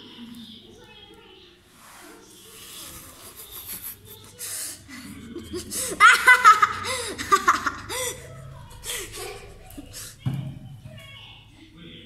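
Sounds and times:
child laughing: 0:05.4 - 0:10.1.

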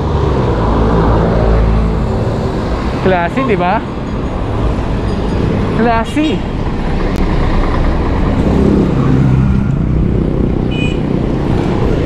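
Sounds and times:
traffic rumble: 0:00.0 - 0:12.0
vehicle engine hum passing: 0:06.6 - 0:12.0.

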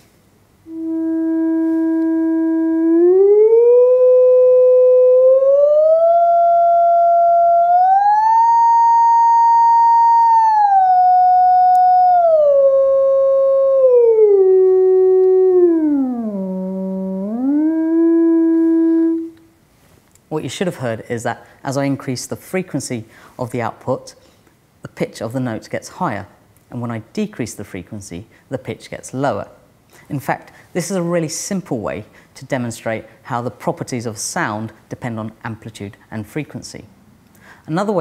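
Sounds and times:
electronic tone stepping in pitch: 0:00.7 - 0:12.5.

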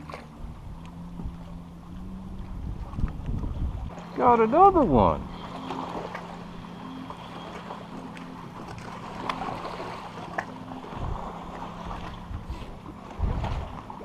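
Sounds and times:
electric trolling motor humming: 0:00.0 - 0:14.0
wind thumps on microphone: 0:02.3 - 0:03.9, 0:12.3 - 0:13.8.

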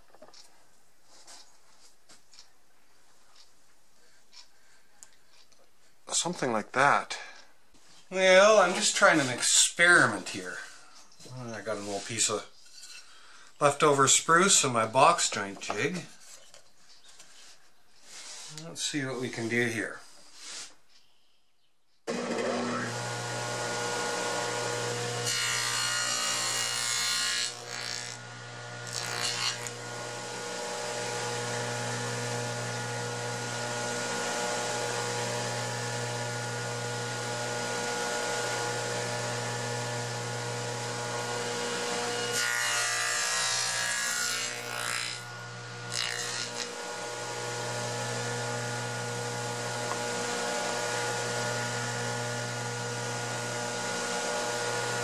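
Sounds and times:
table saw cutting wood: 0:22.1 - 0:55.0.

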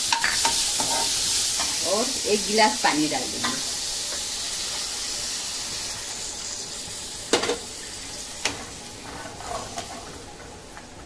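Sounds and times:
ghee sizzling and hissing: 0:00.0 - 0:11.0.

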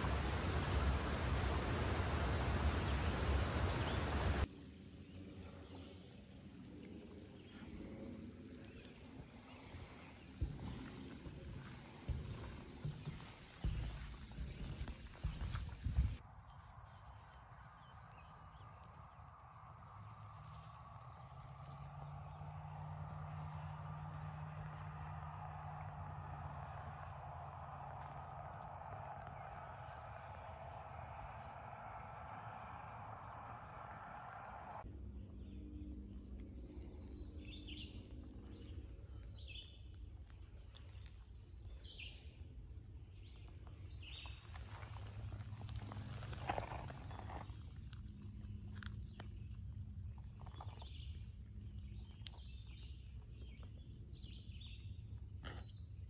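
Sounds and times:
birds chirping: 0:00.0 - 0:04.5
soft rushing hiss: 0:00.0 - 0:04.5, 0:09.4 - 0:16.2.

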